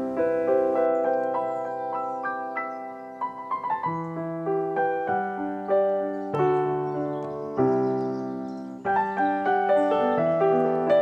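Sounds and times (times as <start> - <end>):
gentle piano chords: 0.0 - 11.0.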